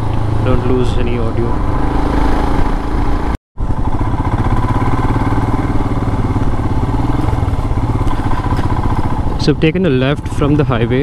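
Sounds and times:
motorcycle engine running: 0.0s - 11.0s.

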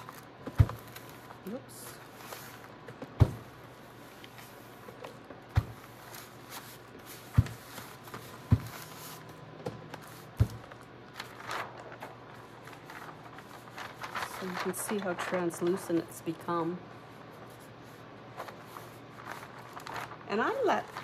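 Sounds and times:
iron knocking on paper: 0.4s - 0.9s, 2.8s - 3.6s, 5.5s - 5.9s, 7.3s - 9.0s, 9.6s - 10.8s
paper rustling: 4.1s - 16.5s, 17.3s - 21.0s.

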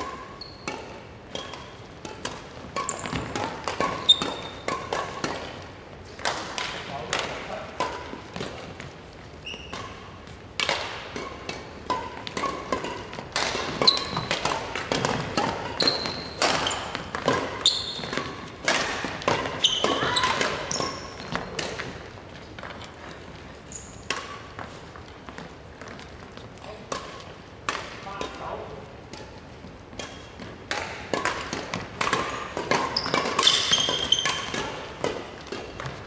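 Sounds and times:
rackets hitting shuttlecock: 0.0s - 36.0s
shoes squeaking on wooden floor: 0.3s - 0.7s, 2.7s - 4.6s, 9.4s - 10.3s, 13.7s - 14.4s, 15.0s - 18.3s, 19.4s - 26.5s, 32.9s - 34.7s.

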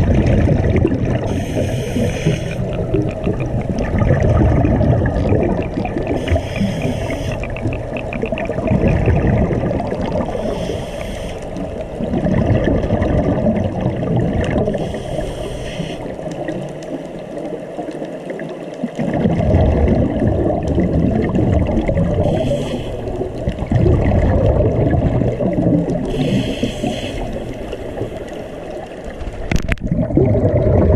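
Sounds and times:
underwater rumble and gurgle: 0.0s - 30.9s
short breathing hiss: 1.3s - 2.6s, 6.2s - 7.5s, 10.4s - 11.6s, 14.8s - 16.1s, 22.2s - 23.1s, 26.1s - 28.6s.

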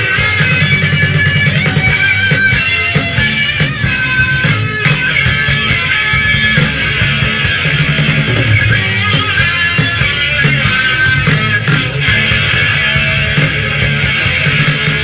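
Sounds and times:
bass guitar: 0.0s - 15.0s
drums: 0.0s - 15.0s
electric guitars: 0.0s - 15.0s.

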